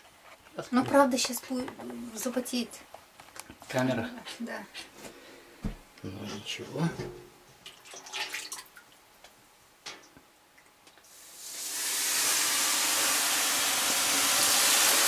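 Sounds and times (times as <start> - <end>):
water hissing on hot stones: 11.1 - 15.0.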